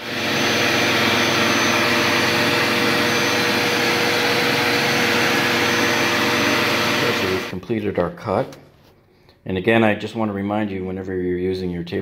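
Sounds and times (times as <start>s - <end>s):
table saw ripping a plank: 0.0s - 7.6s.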